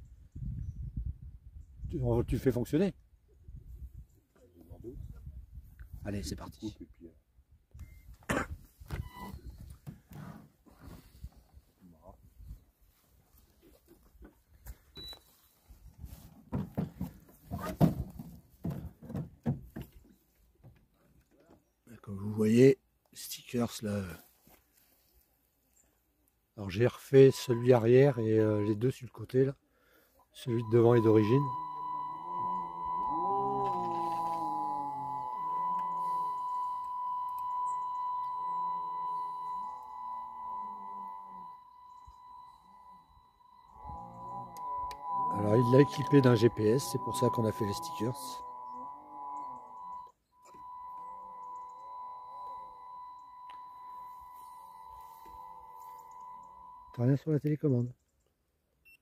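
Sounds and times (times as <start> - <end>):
short high beep: 9.0 - 9.5, 15.0 - 15.3, 27.2 - 28.2, 30.4 - 57.0
steady high-pitched tone: 27.2 - 28.0, 30.4 - 57.0
faint voices: 30.4 - 43.1, 43.7 - 51.5.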